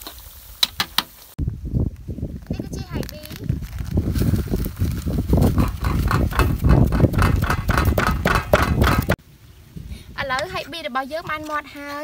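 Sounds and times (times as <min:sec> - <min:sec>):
plastic bag crinkling: 0:02.9 - 0:05.6
dull knocks: 0:05.6 - 0:09.2.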